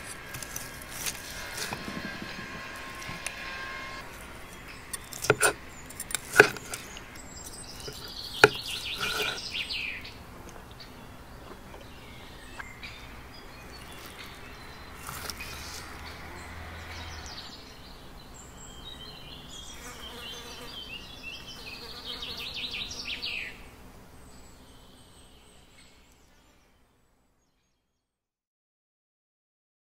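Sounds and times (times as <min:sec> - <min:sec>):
high buzzing trills: 0:00.0 - 0:09.6
fork and knife clicking on board: 0:04.9 - 0:07.0, 0:07.8 - 0:09.4.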